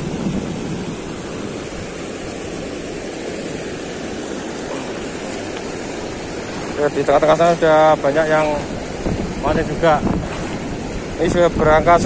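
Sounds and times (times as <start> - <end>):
water rushing over weir: 0.0 - 12.0.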